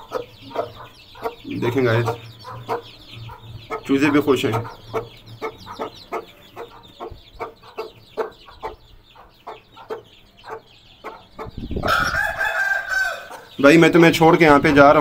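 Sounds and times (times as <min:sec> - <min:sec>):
chicks peeping: 0:00.0 - 0:15.0
hen clucking: 0:00.0 - 0:15.0
long loud chicken call: 0:11.7 - 0:13.5.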